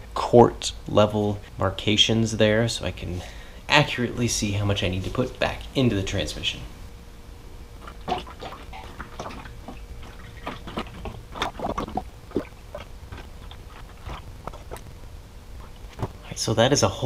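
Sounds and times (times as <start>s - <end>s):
liquid splashing: 7.8s - 14.9s.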